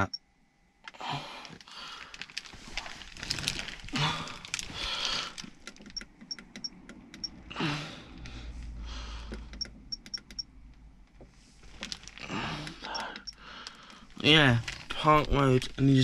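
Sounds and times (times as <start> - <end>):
hands rustling: 1.5 - 5.6.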